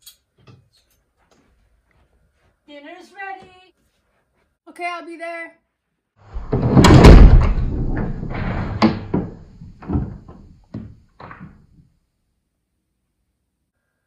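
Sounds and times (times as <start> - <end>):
door slammed shut: 6.3 - 10.5
small knocks and rattles: 6.4 - 11.9.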